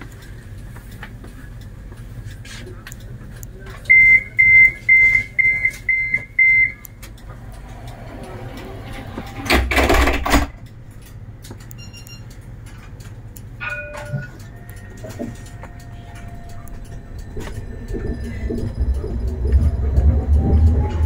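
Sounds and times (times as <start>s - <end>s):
short high warning beeps: 3.9s - 6.8s.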